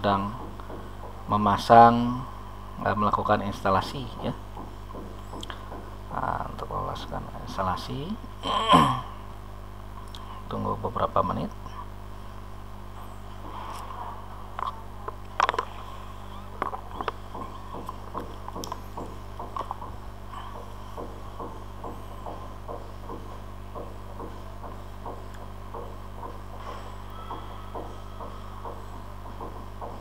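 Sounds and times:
electrical mains hum: 0:00.0 - 0:30.0
sharp clicks: 0:16.6 - 0:19.9.

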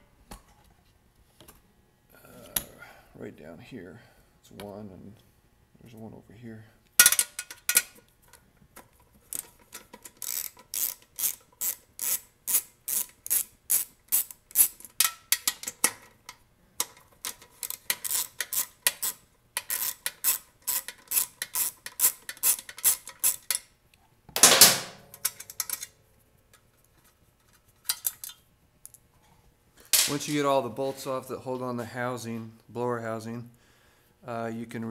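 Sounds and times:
hand ratchet clicking: 0:09.3 - 0:15.8, 0:16.8 - 0:23.6.

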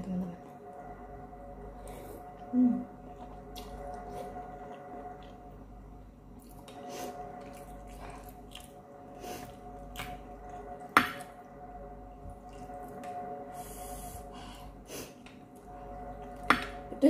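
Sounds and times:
chewing: 0:06.4 - 0:11.3.

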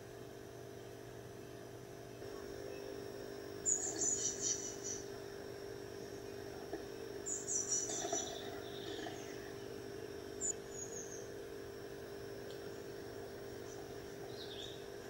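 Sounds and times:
steady low hum: 0:00.0 - 0:15.0
blue tit chirps: 0:03.6 - 0:05.1, 0:07.3 - 0:09.5, 0:13.7 - 0:14.8.

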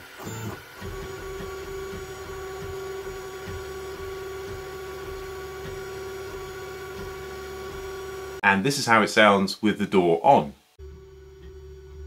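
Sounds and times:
printer hum with higher tones: 0:00.0 - 0:08.4, 0:10.8 - 0:12.0
stepper motors whirring: 0:00.0 - 0:08.4.

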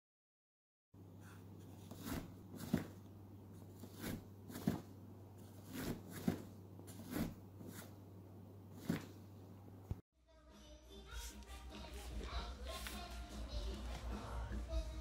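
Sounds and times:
steady low hum: 0:01.0 - 0:10.0.

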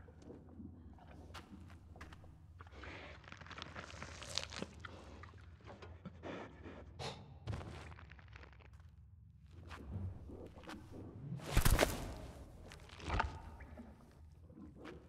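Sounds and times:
crunching over rock and gravel: 0:11.5 - 0:13.0.

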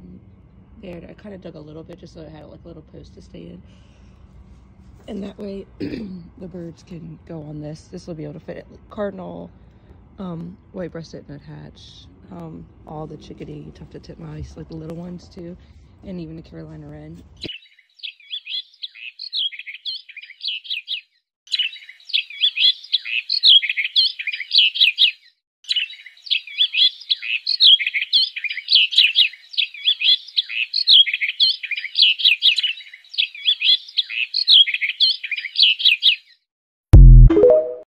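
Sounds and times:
songbird chirping and trilling: 0:16.1 - 0:36.5.

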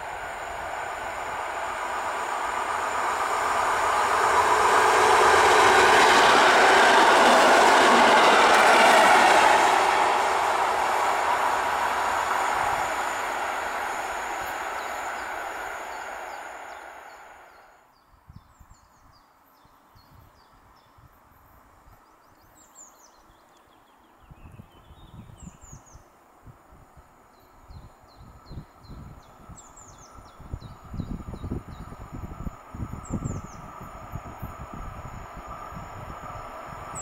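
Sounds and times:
wind buffeting microphone: 0:00.0 - 0:17.4, 0:27.7 - 0:37.0
train rumble: 0:00.0 - 0:17.7, 0:27.9 - 0:37.0.

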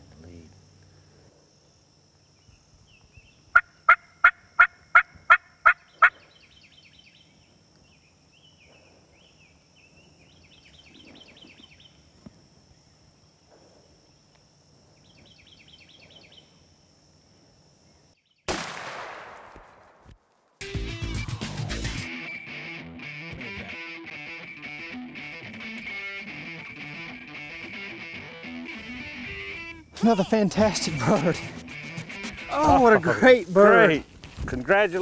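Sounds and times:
turkey gobbling: 0:03.5 - 0:06.2, 0:31.0 - 0:32.8
wild turkey yelps: 0:03.5 - 0:06.2
shotgun shot: 0:18.5 - 0:20.1.

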